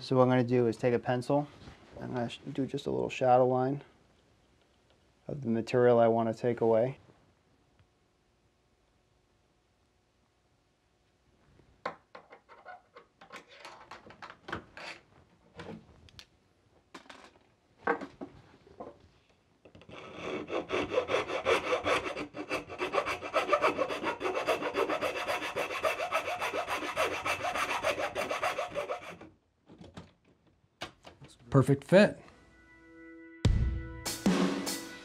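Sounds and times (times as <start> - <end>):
rasp filing wood: 19.9 - 29.3.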